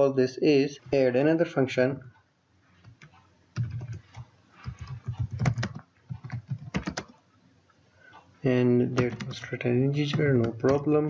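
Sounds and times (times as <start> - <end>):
typing on a keyboard: 2.9 - 7.2, 9.0 - 9.5, 10.1 - 10.9.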